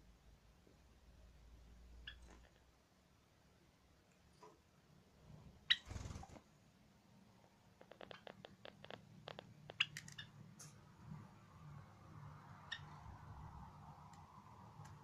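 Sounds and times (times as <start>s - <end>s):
sparrow chirping: 2.0s - 2.4s, 5.7s - 6.2s, 9.7s - 10.4s, 12.6s - 13.2s.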